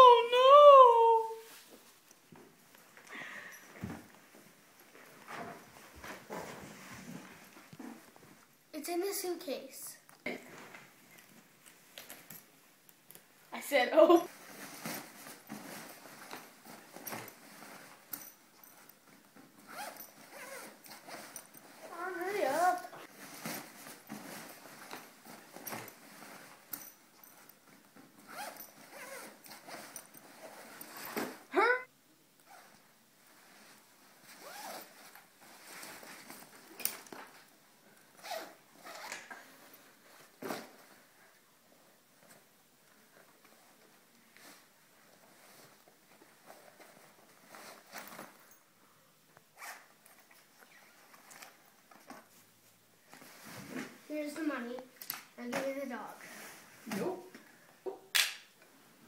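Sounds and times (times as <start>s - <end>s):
fabric rustling: 0.0s - 8.6s, 13.3s - 31.5s, 32.4s - 48.8s, 49.6s - 57.3s
bag zippers being pulled: 19.6s - 21.9s, 28.2s - 31.4s, 32.4s - 32.8s, 34.3s - 35.2s, 38.2s - 39.4s, 49.6s - 49.9s.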